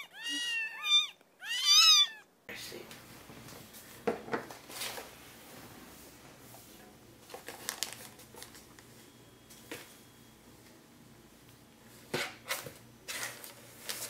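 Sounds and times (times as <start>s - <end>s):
crinkling of plastic and cardboard: 7.2s - 8.9s, 12.5s - 14.0s.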